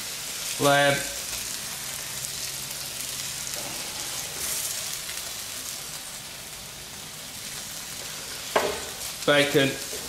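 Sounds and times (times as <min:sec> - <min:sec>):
meat sizzling in a pan: 0:00.0 - 0:10.0.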